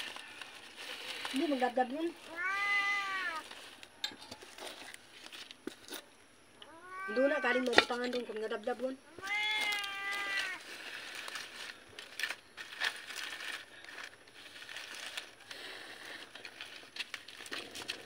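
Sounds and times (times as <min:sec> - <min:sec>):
cat meowing: 0:02.3 - 0:03.4, 0:06.6 - 0:08.0, 0:09.1 - 0:10.6
small crackles and clicks: 0:09.3 - 0:18.0.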